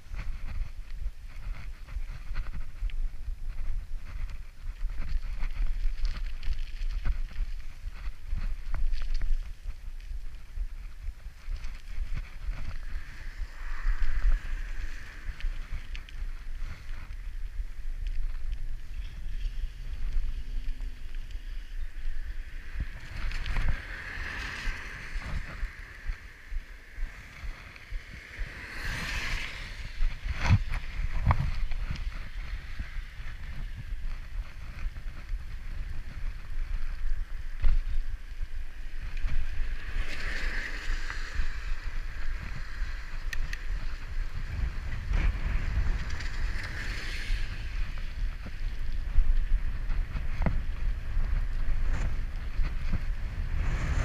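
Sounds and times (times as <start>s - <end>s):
wind rushing over microphone: 0.0s - 54.0s
tyres rumbling and hissing: 22.4s - 30.3s, 53.0s - 54.0s.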